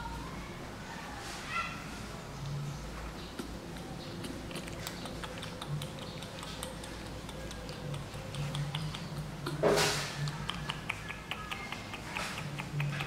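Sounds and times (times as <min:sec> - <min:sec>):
monkey sucking wet mouth clicks: 0:03.4 - 0:09.6, 0:10.2 - 0:13.0.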